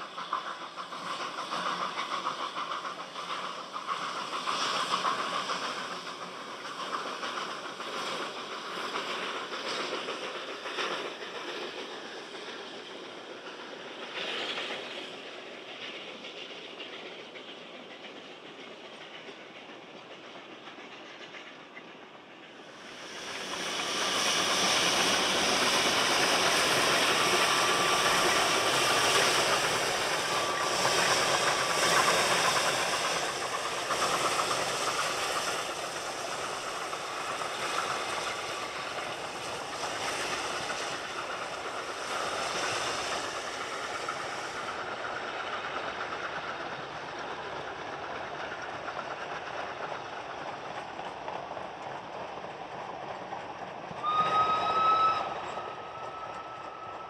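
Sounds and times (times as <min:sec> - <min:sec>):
steam locomotive exhaust: 0:00.0 - 0:57.0
high squeals: 0:54.0 - 0:57.0.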